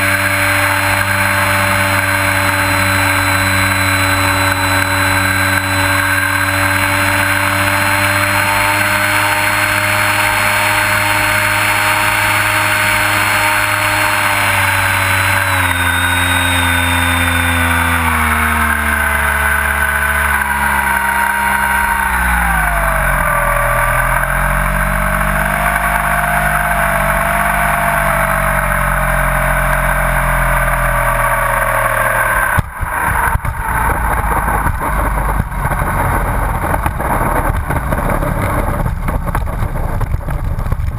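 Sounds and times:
model airplane motor and propeller: 0:00.0 - 0:40.9
wheels rolling on asphalt: 0:00.0 - 0:40.9
wheels knocking on touchdown: 0:32.6 - 0:40.9.

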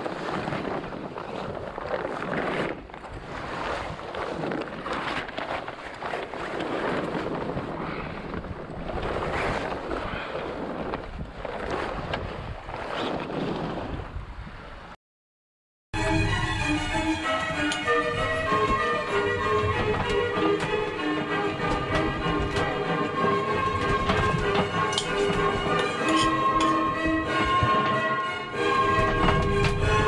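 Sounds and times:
wind buffeting microphone: 0:00.0 - 0:14.9, 0:16.2 - 0:30.0
water rushing along hull: 0:00.0 - 0:15.0, 0:16.0 - 0:30.0
music: 0:16.0 - 0:30.0.

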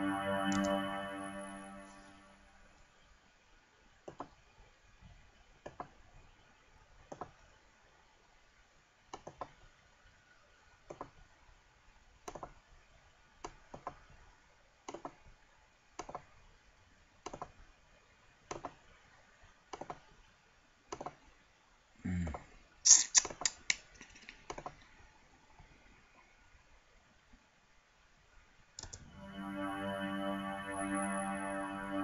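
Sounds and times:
computer mouse clicking: 0:09.1 - 0:09.6, 0:12.2 - 0:12.6, 0:14.9 - 0:15.2, 0:16.0 - 0:16.3, 0:17.2 - 0:17.6, 0:18.5 - 0:18.8, 0:19.7 - 0:20.1, 0:20.9 - 0:21.2, 0:23.2 - 0:24.9, 0:28.8 - 0:29.0.

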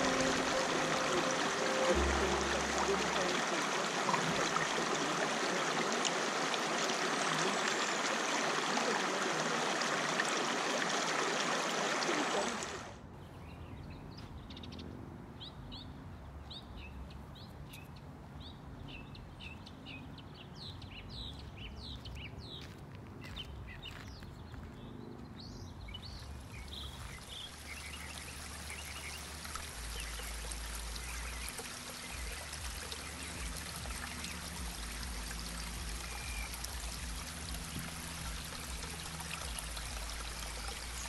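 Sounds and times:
birds chirping: 0:00.0 - 0:10.0, 0:16.5 - 0:41.0
creek running over rocks: 0:00.0 - 0:13.0, 0:26.1 - 0:41.0.

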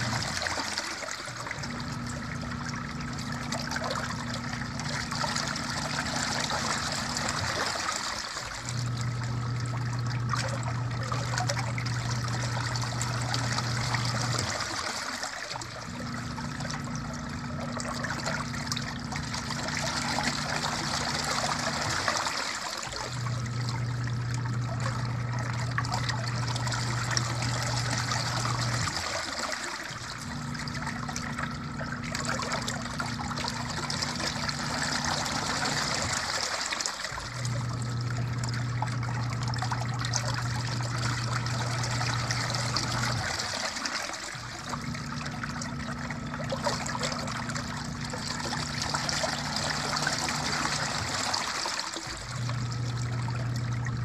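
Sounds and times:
washing machine motor hum: 0:00.0 - 0:54.0.

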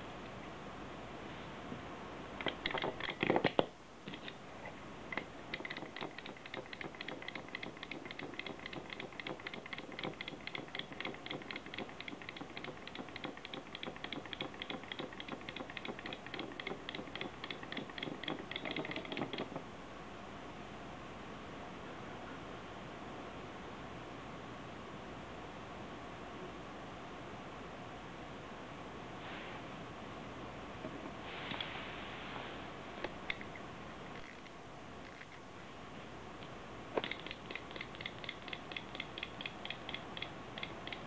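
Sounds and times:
clicking and rattling: 0:02.4 - 0:04.4, 0:05.1 - 0:19.6, 0:37.0 - 0:41.0
wind-up toy clockwork ticking: 0:05.5 - 0:19.5, 0:37.0 - 0:41.0.

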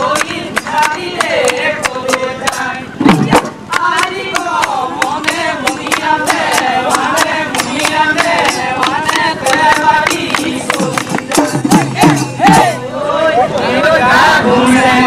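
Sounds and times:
voices singing folk song: 0:00.0 - 0:15.0
steady drum beat: 0:01.9 - 0:12.8.

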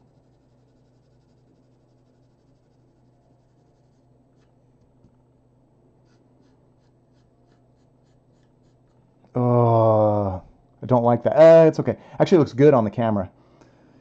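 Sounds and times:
pencil shading on paper: 0:00.0 - 0:04.5, 0:06.0 - 0:09.0.

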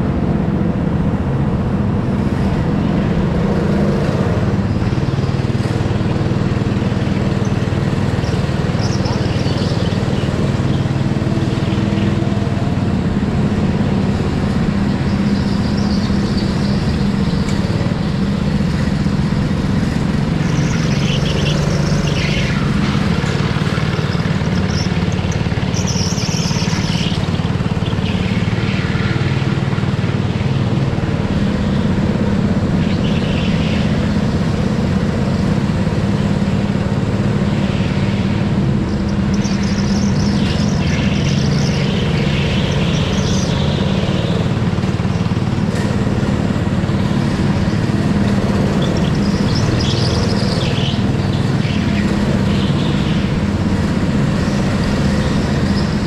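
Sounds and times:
go-kart engine running: 0:00.0 - 0:56.0.

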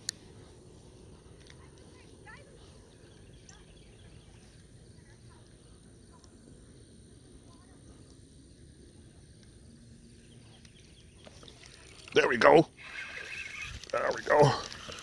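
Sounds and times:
faint bird chirps: 0:02.6 - 0:05.4, 0:12.8 - 0:14.2.

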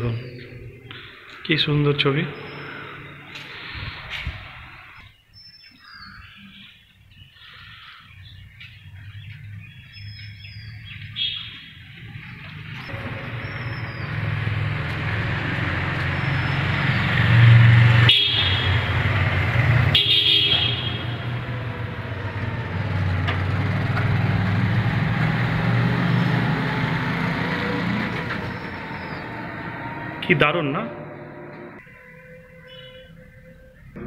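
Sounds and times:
motorcycle horn toots: 0:18.0 - 0:19.1, 0:19.9 - 0:21.4.

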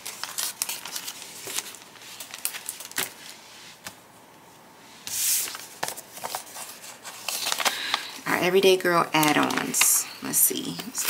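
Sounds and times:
paper envelope rustling: 0:00.0 - 0:04.0, 0:05.1 - 0:08.1, 0:09.2 - 0:10.0.

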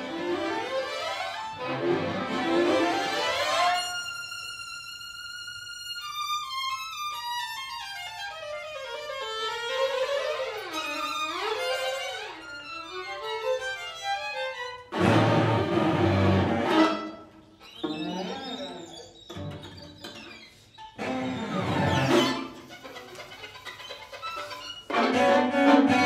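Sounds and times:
two violins playing: 0:00.0 - 0:18.0, 0:20.9 - 0:26.0.

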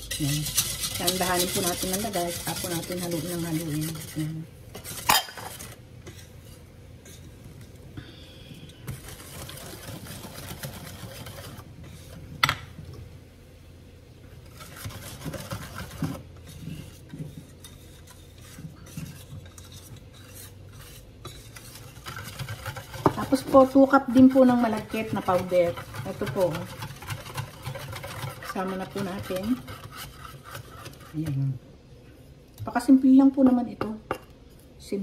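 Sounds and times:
whisk scraping in metal bowl: 0:00.0 - 0:07.4, 0:08.8 - 0:12.3, 0:14.3 - 0:31.5.

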